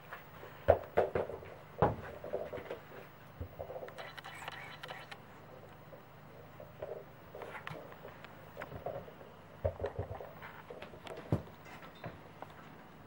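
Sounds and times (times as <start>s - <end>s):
knocks and rustling: 0.0s - 3.9s, 6.8s - 12.8s.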